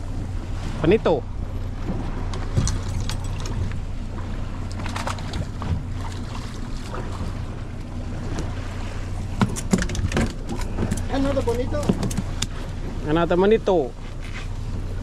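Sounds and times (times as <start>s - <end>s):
boat engine running: 0.0s - 15.0s
water noise: 0.0s - 15.0s
wind: 0.0s - 15.0s
fishing gear knocking on deck: 11.8s - 12.4s.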